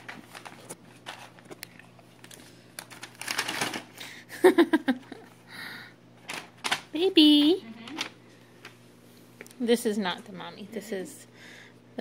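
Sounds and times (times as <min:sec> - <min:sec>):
paper crinkling and rustling: 0:00.0 - 0:04.0.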